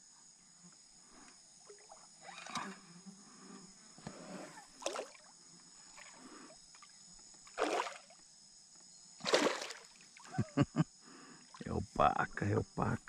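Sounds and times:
paddle splashing into water: 0:04.8 - 0:05.2, 0:07.5 - 0:08.1, 0:09.2 - 0:10.0.

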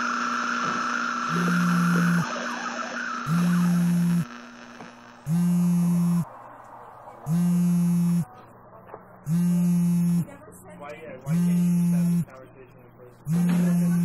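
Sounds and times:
phone vibrating on a table: 0:00.6 - 0:02.3, 0:03.2 - 0:06.3, 0:07.3 - 0:08.3, 0:09.3 - 0:10.3, 0:11.3 - 0:12.3, 0:13.3 - 0:14.0.

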